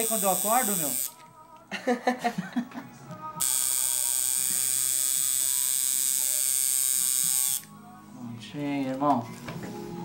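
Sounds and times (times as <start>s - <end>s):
tattoo machine buzzing: 0.0s - 1.2s, 3.4s - 7.7s.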